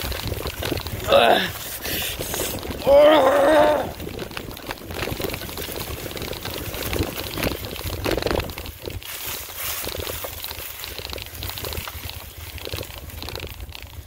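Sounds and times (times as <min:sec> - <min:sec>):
bike clicks and rattles: 0:00.0 - 0:14.0
bike tyres rolling on dirt: 0:00.0 - 0:14.0
person shouting: 0:01.0 - 0:01.6, 0:02.8 - 0:04.0.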